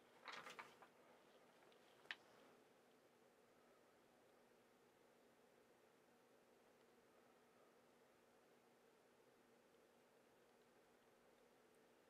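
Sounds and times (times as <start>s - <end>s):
faint background hiss: 0.0s - 12.0s.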